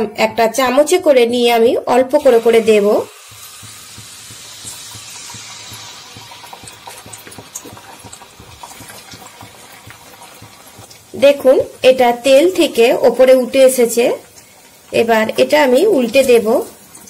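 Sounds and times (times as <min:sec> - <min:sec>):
batter frying in hot oil: 0:00.6 - 0:17.0.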